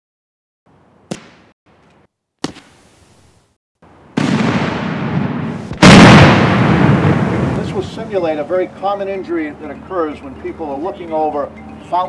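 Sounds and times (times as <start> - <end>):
firework erupting blast: 4.1 - 7.9.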